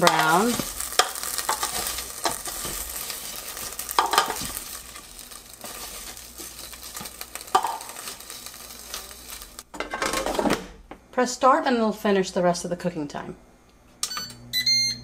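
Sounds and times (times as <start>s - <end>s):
metal tongs scraping basket: 0.0s - 9.6s
fries sizzling: 0.0s - 9.7s.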